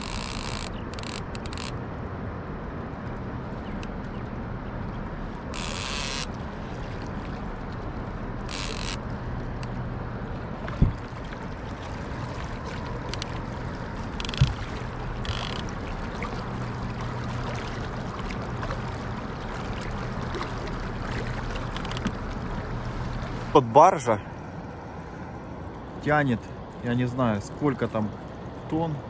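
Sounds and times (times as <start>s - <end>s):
low engine hum: 0.0s - 29.0s
river water: 0.0s - 29.0s
wind: 0.0s - 29.0s.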